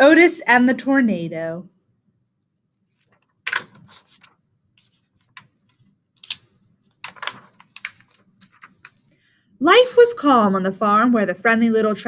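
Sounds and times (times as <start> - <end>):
book pages rustling: 2.9 - 9.1.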